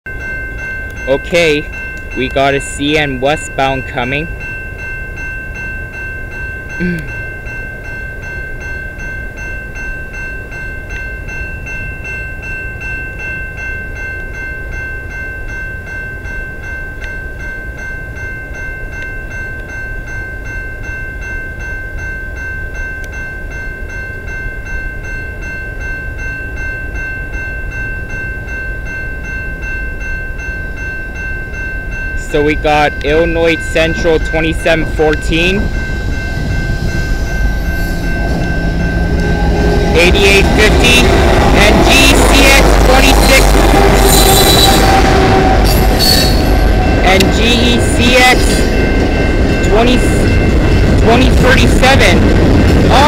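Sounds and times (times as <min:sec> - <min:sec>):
level crossing bell ringing: 0:00.1 - 0:52.3
low rumble: 0:32.9 - 0:53.0.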